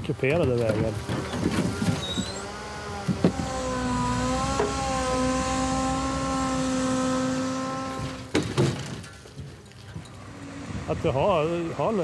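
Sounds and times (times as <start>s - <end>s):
hydraulic loader whine: 0.9s - 8.4s.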